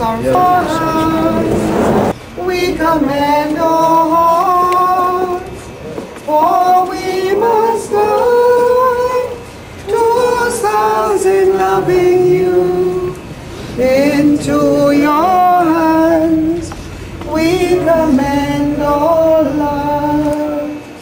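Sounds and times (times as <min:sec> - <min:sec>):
women singing a slow hymn: 0:00.0 - 0:21.0.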